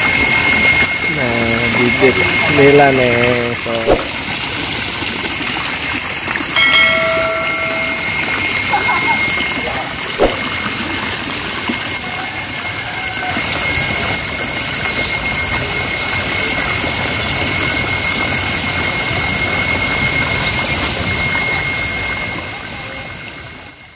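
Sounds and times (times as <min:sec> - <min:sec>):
thin high whine: 0:00.0 - 0:04.4, 0:06.6 - 0:11.1
water jet splashing into tank: 0:01.8 - 0:12.0.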